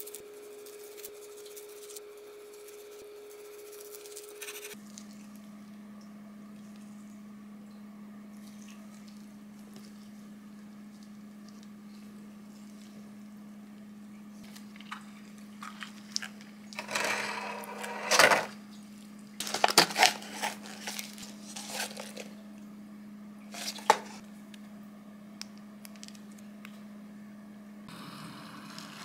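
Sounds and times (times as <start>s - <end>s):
plastic container rustles and clicks: 19.4s - 22.3s.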